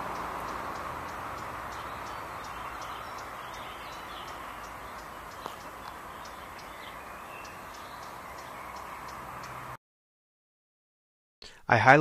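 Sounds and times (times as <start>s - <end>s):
faint bird chirps: 0.0s - 9.8s.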